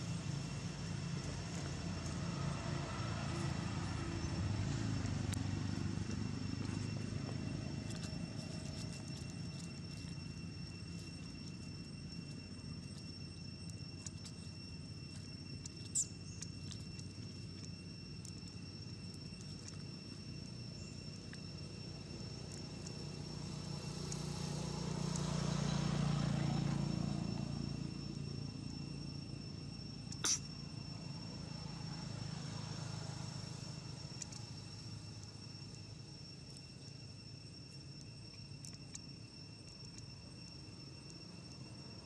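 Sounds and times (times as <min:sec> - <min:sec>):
insects droning: 0:00.0 - 0:42.0.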